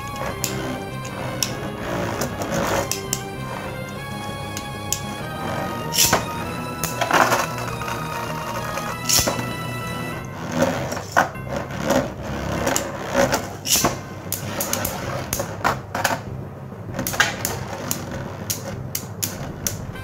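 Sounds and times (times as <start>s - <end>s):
spinning tops whirring: 0.0s - 16.3s.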